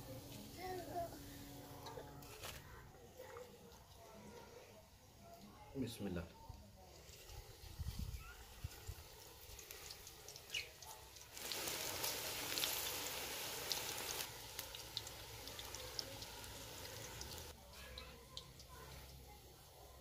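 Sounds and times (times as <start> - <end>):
oil crackling: 7.0 - 19.3
food sizzling in hot oil: 7.1 - 20.0.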